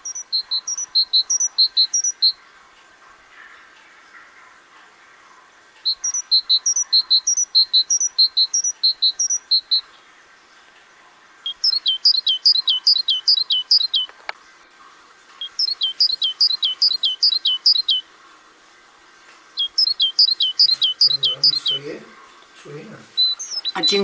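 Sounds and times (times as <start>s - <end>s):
songbird singing: 0.0s - 2.7s, 5.6s - 10.6s, 11.4s - 14.5s, 15.3s - 18.1s, 19.5s - 24.0s.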